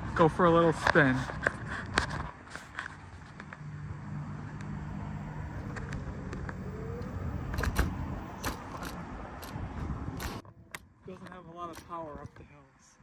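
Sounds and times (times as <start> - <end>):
small tires rolling on asphalt: 0.2 - 13.0
electric scooter motor hum: 3.4 - 10.8.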